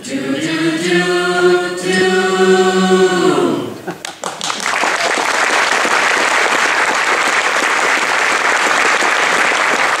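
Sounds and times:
audience applause: 4.0s - 10.0s.

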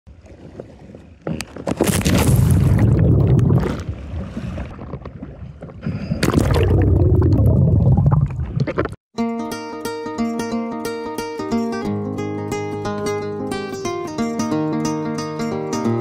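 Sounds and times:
sea water sloshing and splashing: 0.1s - 9.0s
diver plunging into water: 1.4s - 4.8s, 6.1s - 9.0s
bubbles: 1.9s - 4.0s, 6.2s - 9.0s.

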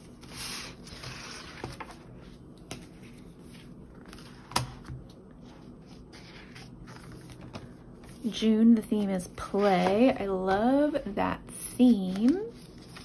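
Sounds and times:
paper pages flipping: 0.0s - 8.3s, 11.8s - 13.0s.

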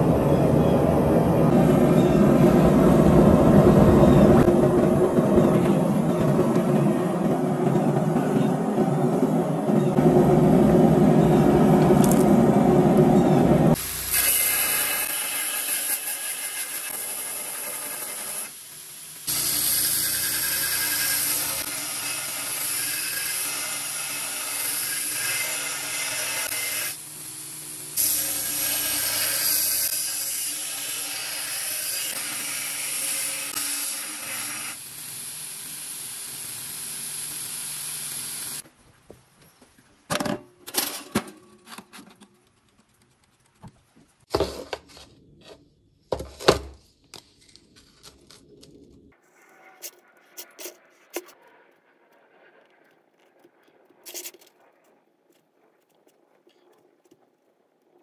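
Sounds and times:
belt grinder grinding steel: 19.3s - 27.0s, 27.9s - 38.6s.

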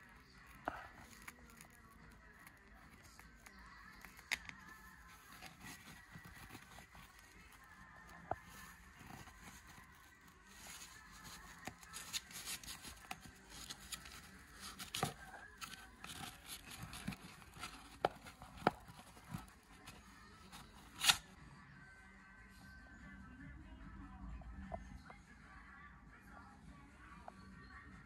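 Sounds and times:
cardboard clicks and crackles: 0.6s - 21.3s.

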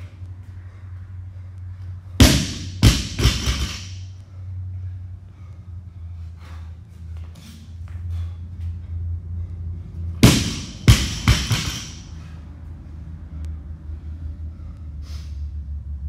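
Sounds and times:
barbell thudding on rubber floor: 2.2s - 4.0s, 10.2s - 12.1s.

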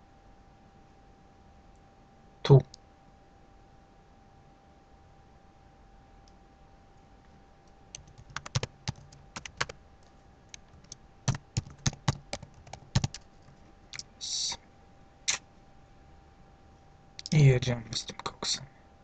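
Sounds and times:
faint steady hum: 0.0s - 19.0s
keyboard typing: 7.9s - 9.8s, 10.5s - 13.3s.

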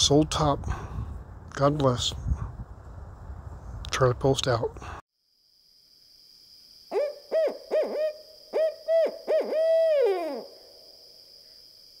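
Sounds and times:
owl hooting: 6.9s - 10.8s.

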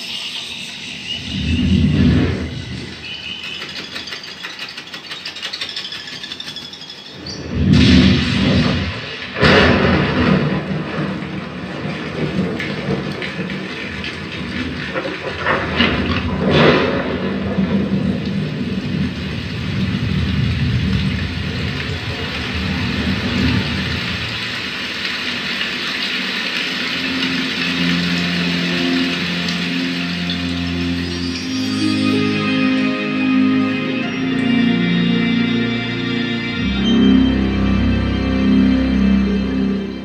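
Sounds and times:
rushing hiss: 0.0s - 36.8s
low rumble: 1.0s - 3.1s, 7.3s - 13.6s
deep thunder boom: 7.4s - 13.1s
sustained music notes: 26.4s - 40.0s.

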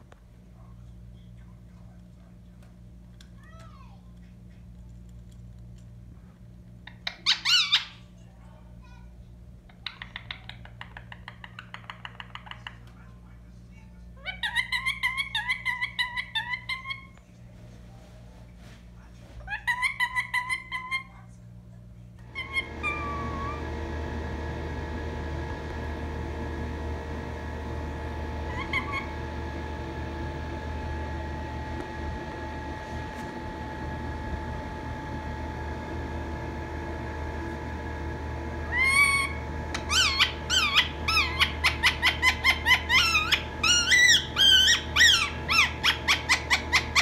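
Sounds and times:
steady background hum: 0.0s - 47.0s
parrot squeaky chirps: 6.8s - 8.1s, 9.7s - 12.6s, 14.2s - 17.2s, 19.4s - 21.2s, 22.4s - 23.6s, 28.5s - 29.1s, 38.7s - 47.0s
parrot screeching: 6.9s - 8.0s, 14.2s - 17.1s, 19.4s - 21.1s, 22.4s - 23.6s, 28.5s - 29.1s, 38.6s - 47.0s.

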